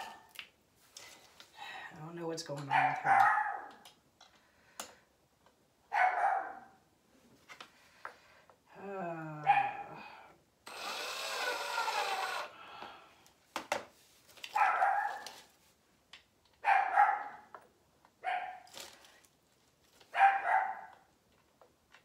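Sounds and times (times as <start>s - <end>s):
dog barking: 2.7s - 3.8s, 5.9s - 6.8s, 9.4s - 9.9s, 14.6s - 15.3s, 16.6s - 17.5s, 18.2s - 18.7s, 20.1s - 21.1s
cordless drill running: 10.6s - 12.7s.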